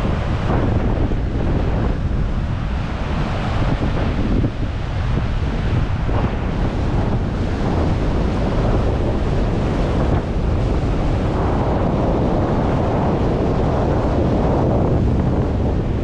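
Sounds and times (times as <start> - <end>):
surf breaking on rocks: 0.0 - 11.5
wind buffeting microphone: 0.0 - 16.0.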